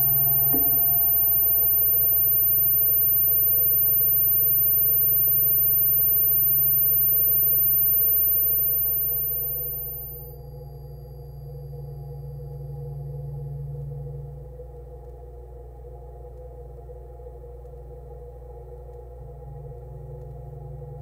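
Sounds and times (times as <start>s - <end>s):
low electronic drone: 0.0s - 2.0s, 9.3s - 21.0s
piercing high sine tone: 0.0s - 21.0s.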